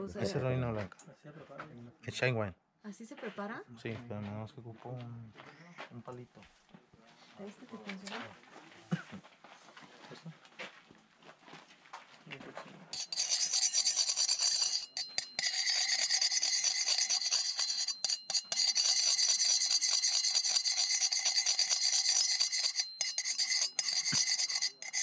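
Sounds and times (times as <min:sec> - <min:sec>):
wooden stick scraping metal pan: 0:12.9 - 0:25.0.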